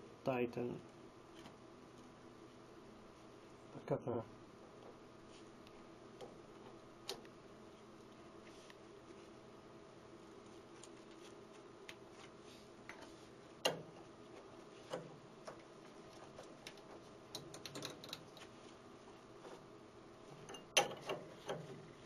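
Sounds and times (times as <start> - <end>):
faint steady hum: 0.0 - 22.0
tools clicking and knocking: 16.3 - 18.5, 20.4 - 21.8.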